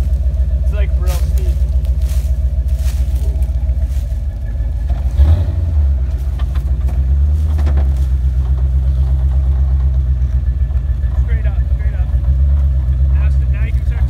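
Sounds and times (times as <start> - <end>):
truck engine running at low revs: 0.0 - 14.0.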